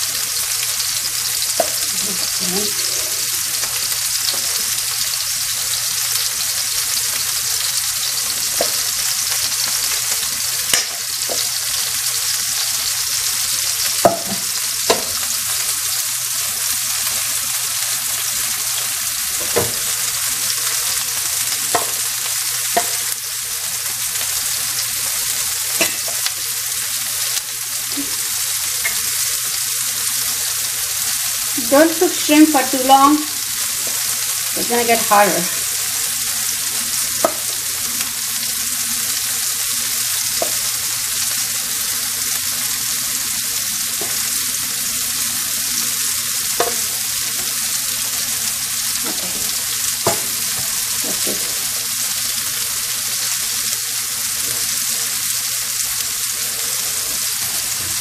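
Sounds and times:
shrimp sizzling in oil: 0.0 - 58.0
metal spoon clicking on pan: 10.7 - 11.4.

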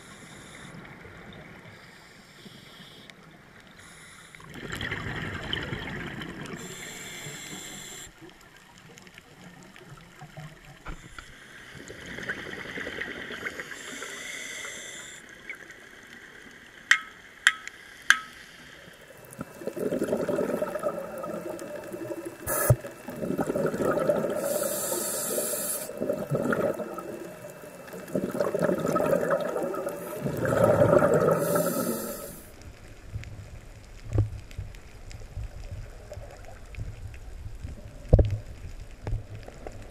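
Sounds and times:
underwater exhaust bubbles rushing: 4.4 - 6.9, 19.2 - 39.9.

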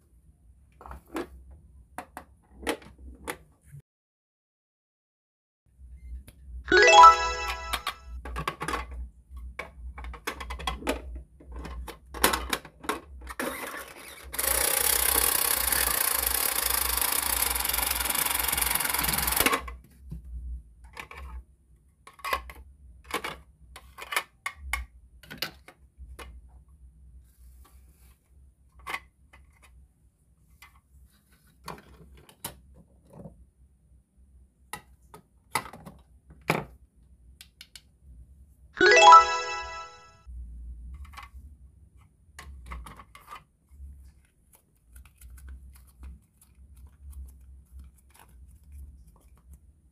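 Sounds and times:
plastic toys clicking and tapping: 22.1 - 26.3.

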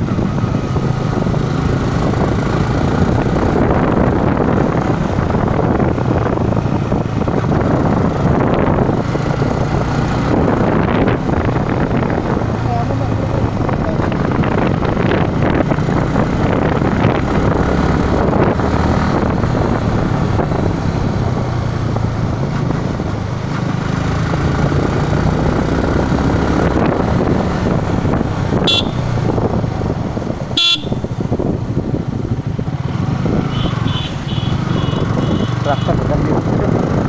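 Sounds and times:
motorcycle engine running: 0.0 - 37.0
horn toots: 28.6 - 29.1, 30.6 - 31.2, 33.5 - 36.2.

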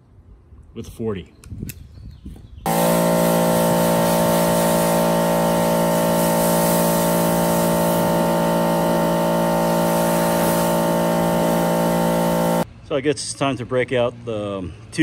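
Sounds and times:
water spray hissing: 2.7 - 12.6
pressure washer motor whine: 2.7 - 12.7.

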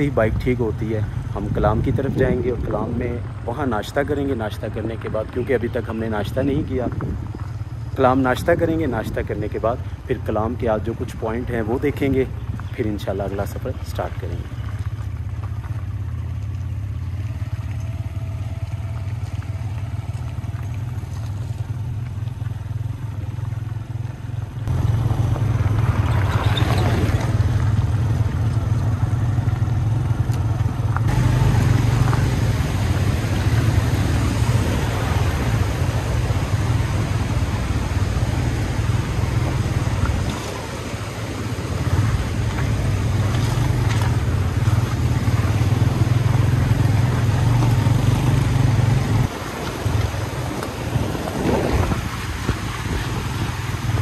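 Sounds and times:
tyres on gravel: 0.0 - 54.0
motorcycle engine running: 13.7 - 54.0
fast river rushing: 31.1 - 54.0.

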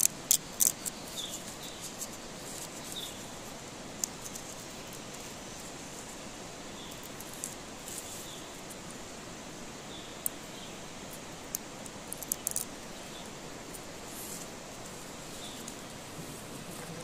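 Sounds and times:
dry husks rustling and crackling: 0.0 - 9.0, 11.0 - 17.0
steady outdoor hiss: 0.0 - 17.0.

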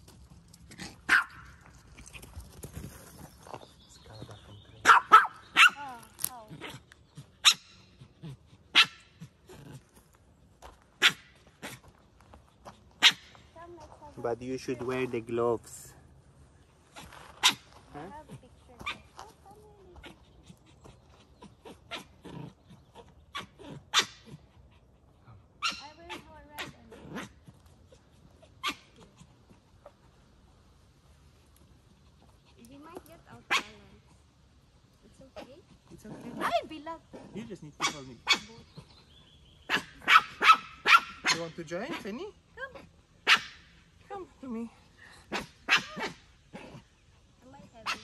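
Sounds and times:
small dog barking: 1.0 - 1.6, 4.8 - 6.0, 7.4 - 9.2, 11.0 - 11.8, 13.0 - 13.3, 17.4 - 17.7, 18.8 - 19.1, 21.6 - 22.5, 23.3 - 24.4, 25.6 - 27.3, 28.6 - 29.3, 33.4 - 34.0, 35.4 - 38.6, 39.7 - 43.7, 45.3 - 46.8, 47.8 - 48.0
faint dog yaps: 28.6 - 29.2.

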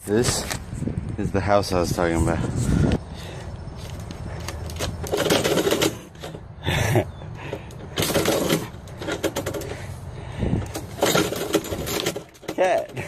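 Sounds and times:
metal mail slot flap clattering: 4.6 - 6.4, 7.8 - 9.8, 10.7 - 13.0.

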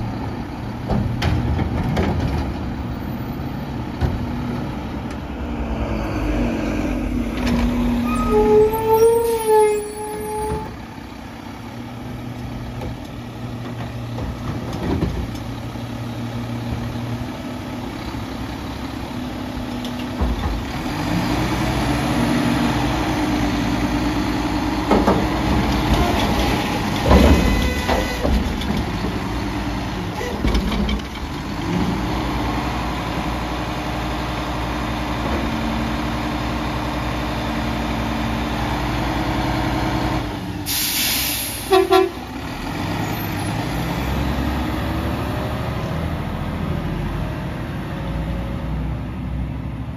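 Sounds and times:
truck engine idling and revving: 0.0 - 49.9
truck brake squeal: 8.0 - 10.8.

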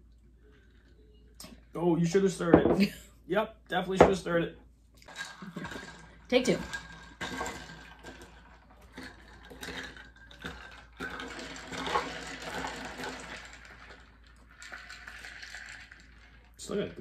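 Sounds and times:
ice cubes clinking in a glass: 5.1 - 16.9.

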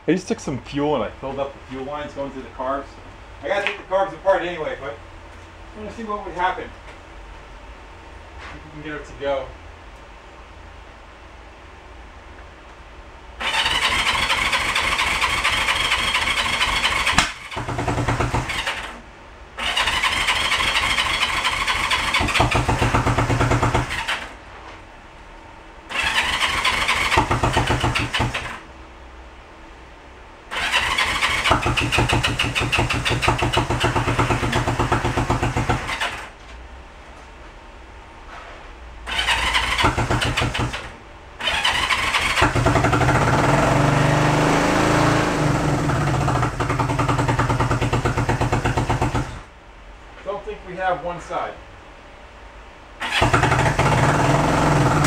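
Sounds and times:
motorcycle engine cranking: 13.4 - 19.0, 19.6 - 24.3, 25.9 - 28.6, 30.5 - 36.3, 39.1 - 49.4, 53.0 - 55.0.

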